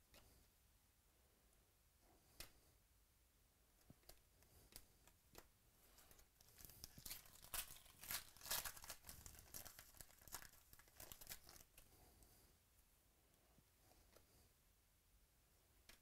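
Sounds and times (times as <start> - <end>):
foil wrapper tearing and crinkling: 6.5 - 11.7.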